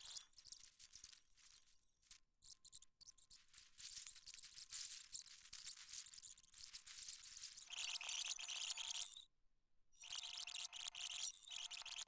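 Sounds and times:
garbled crackling and hiss: 0:00.0 - 0:07.8.

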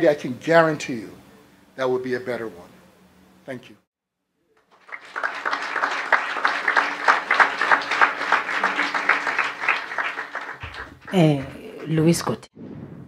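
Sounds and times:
audience applauding: 0:04.6 - 0:12.4.

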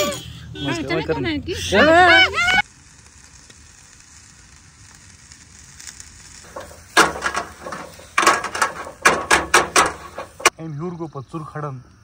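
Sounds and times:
meat sizzling on charcoal grill: 0:00.0 - 0:10.6
loud crackles and pops: 0:01.8 - 0:10.5.

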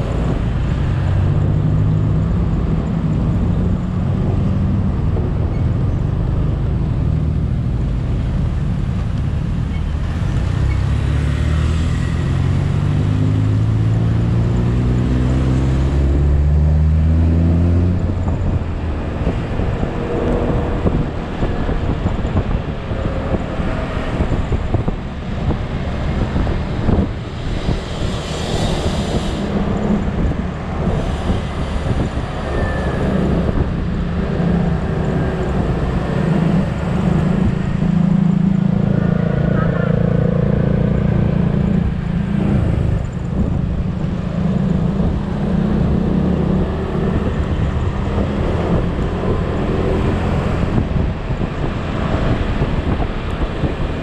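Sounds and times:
wind and road noise: 0:00.0 - 0:54.0.

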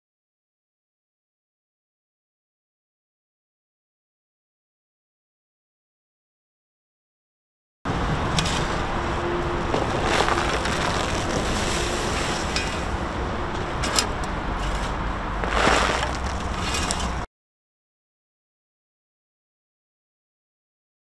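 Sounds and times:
soil thrown from shovel: 0:09.8 - 0:12.9, 0:15.4 - 0:17.2.

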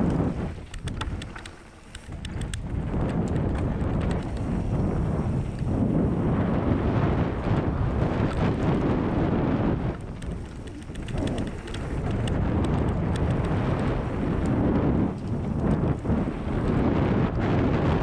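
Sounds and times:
bike rattles and clicks: 0:00.0 - 0:18.0
bike tyres rolling on dirt: 0:00.0 - 0:18.0
wind buffeting microphone: 0:00.0 - 0:18.0.

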